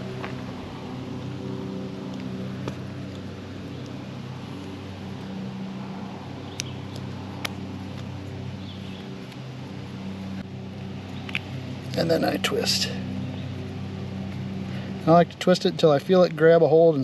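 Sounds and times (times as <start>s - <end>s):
low engine drone: 0.0s - 17.0s
wire strippers clicking: 6.5s - 8.3s.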